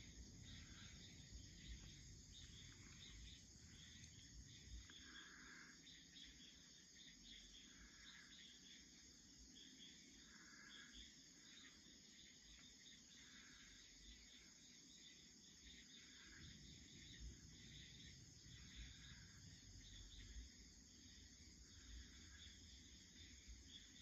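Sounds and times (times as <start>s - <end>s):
crickets trilling: 0.0s - 24.0s
lower insect call: 0.0s - 24.0s.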